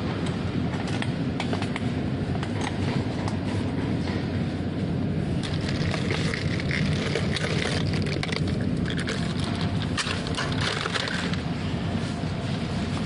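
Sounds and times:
trolley wheels rolling on tiles: 5.4 - 13.0.

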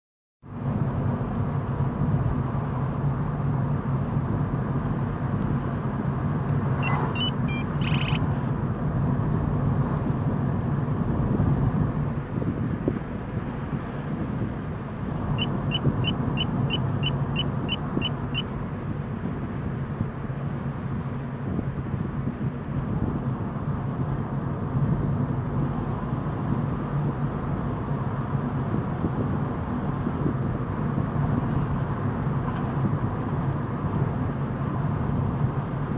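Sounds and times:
car engine and road drone: 0.4 - 35.9
quick electronic beeps: 6.8 - 8.2
radar detector tones: 6.8 - 8.2, 15.3 - 18.5.

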